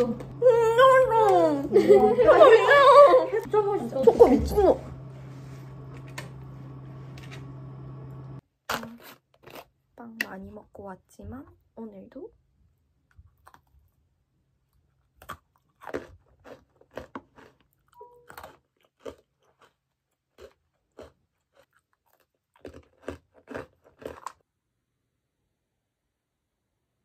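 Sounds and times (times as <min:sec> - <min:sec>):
cookies being bitten and chewed: 0:08.4 - 0:10.2, 0:12.6 - 0:24.8.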